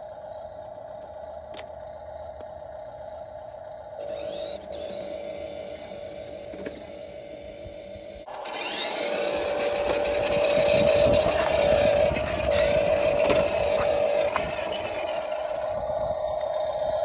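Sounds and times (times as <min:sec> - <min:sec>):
toy electric motor whine: 0:00.0 - 0:17.0
plastic wheels rattling on pavement: 0:04.0 - 0:07.6, 0:08.3 - 0:17.0.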